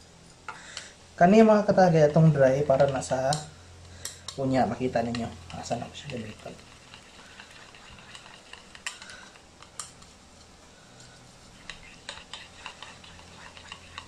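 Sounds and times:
utensil stirring batter: 0:02.1 - 0:10.5, 0:11.2 - 0:14.0
utensil clicking against bowl: 0:02.8 - 0:04.4, 0:05.0 - 0:10.1, 0:11.6 - 0:14.0.

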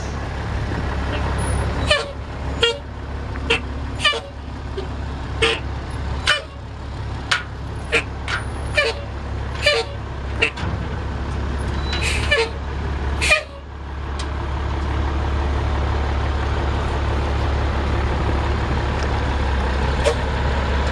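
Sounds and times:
diesel truck engine running: 0:00.0 - 0:20.9.

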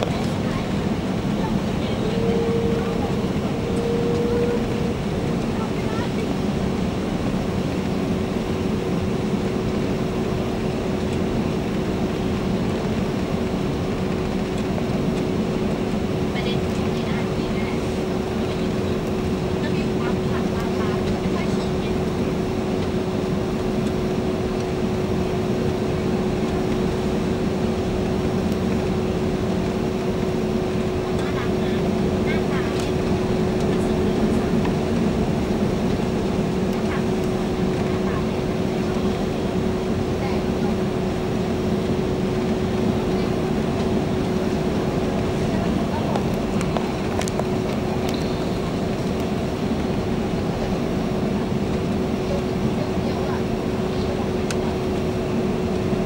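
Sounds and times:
steady droning tone: 0:00.0 - 0:09.8
constant hum: 0:00.0 - 0:56.0
engine and airflow roar in cabin: 0:00.0 - 0:56.0.

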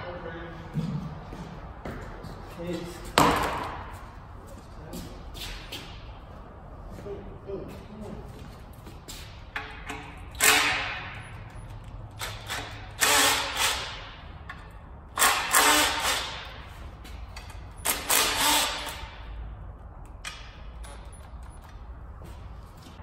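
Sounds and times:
cordless power tool bursts: 0:17.9 - 0:19.1.

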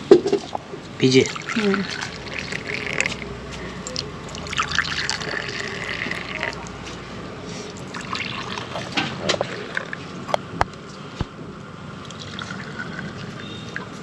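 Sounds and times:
tea pouring into cups: 0:01.0 - 0:03.3, 0:03.9 - 0:06.8, 0:07.8 - 0:10.0, 0:12.0 - 0:13.9.

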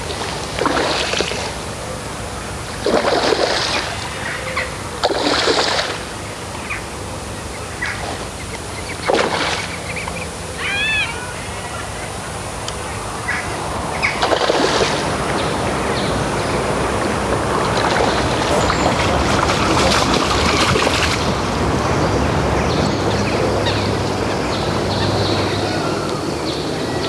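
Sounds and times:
fish splashing in water: 0:00.0 - 0:01.8, 0:02.6 - 0:06.3, 0:07.8 - 0:11.1, 0:13.9 - 0:21.7.

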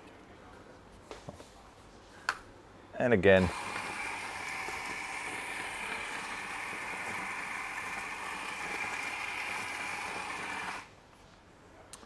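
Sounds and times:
coffee grinder grinding: 0:03.4 - 0:10.9.

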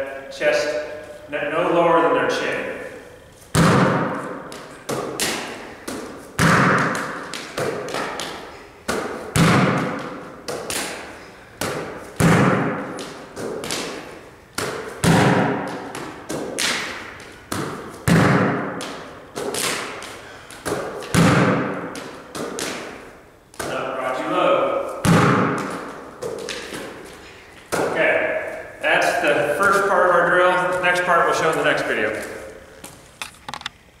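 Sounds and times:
ball catch thuds: 0:03.5 - 0:23.9, 0:24.7 - 0:28.6
basketball bouncing echoing: 0:03.6 - 0:32.4.

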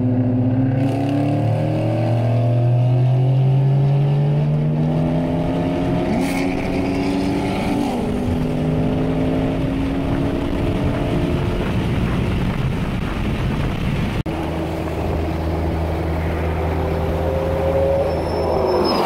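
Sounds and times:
car engine and road noise: 0:00.0 - 0:19.0
rising whine: 0:14.3 - 0:19.0.

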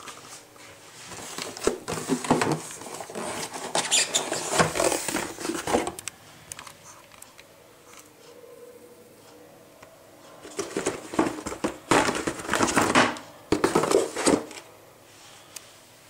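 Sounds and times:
cardboard and paper rustling: 0:00.0 - 0:06.0, 0:10.4 - 0:14.7.

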